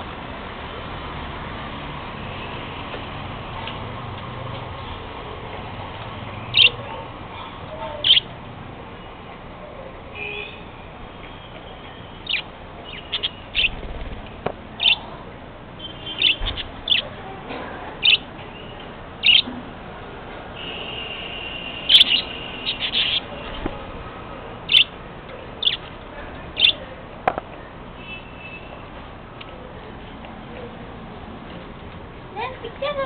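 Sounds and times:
budgerigars chirping: 6.5s - 6.8s, 8.0s - 8.3s, 12.2s - 13.8s, 14.8s - 15.0s, 16.1s - 17.1s, 18.0s - 19.5s, 21.8s - 23.5s, 24.7s - 25.0s, 25.6s - 25.8s, 26.6s - 26.8s
budgerigars warbling chatter: 6.5s - 6.8s, 7.4s - 8.3s, 12.2s - 13.8s, 14.8s - 15.1s, 16.1s - 17.1s, 18.0s - 18.3s, 19.2s - 19.5s, 21.8s - 23.6s, 24.7s - 25.0s, 25.6s - 25.8s, 26.6s - 26.8s.

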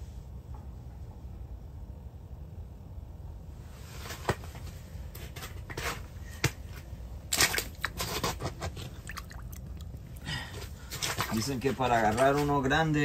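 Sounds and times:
crunchy wet slush rustling: 6.8s - 12.7s.

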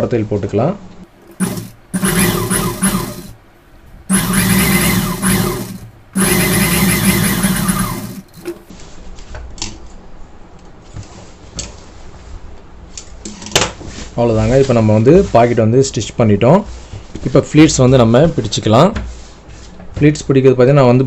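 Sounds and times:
industrial sewing machine stitching: 1.4s - 3.4s, 4.1s - 8.6s.

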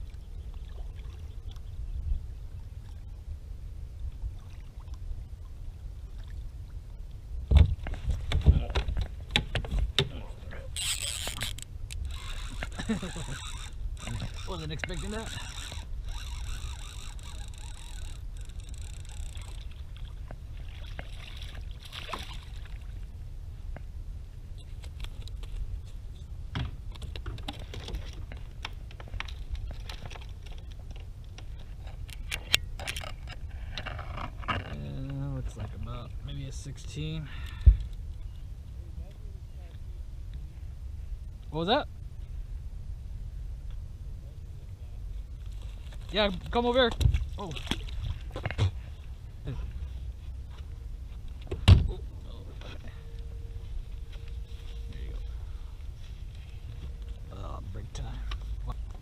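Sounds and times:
low steady rumble: 0.0s - 59.0s
knocks and clatter on kayak: 7.4s - 10.2s, 26.5s - 35.8s
low rumble: 47.1s - 59.0s.

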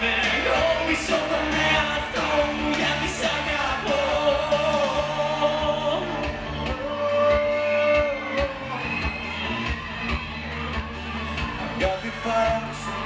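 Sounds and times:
person singing: 0.0s - 9.2s
live pop band: 0.0s - 13.0s.

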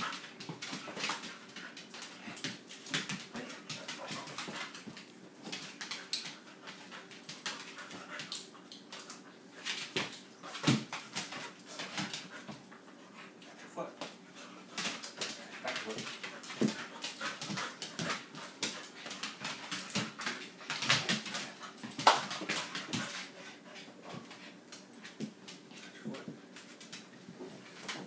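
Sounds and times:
claws clicking on hard floor: 14.8s - 23.5s.

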